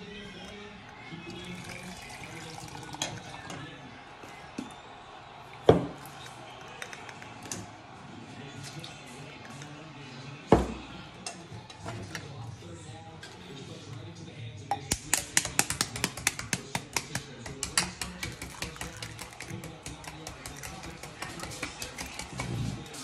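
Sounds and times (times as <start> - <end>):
metal spoon tapping egg shell: 14.7 - 22.5.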